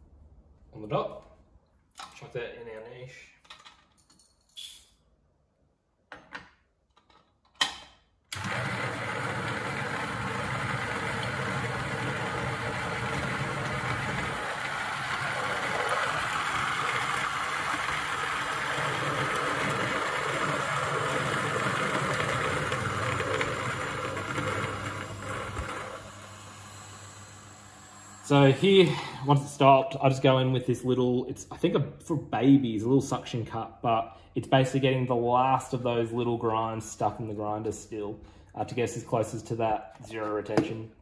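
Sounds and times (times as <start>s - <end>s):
coffee grinder grinding beans: 8.3s - 29.2s.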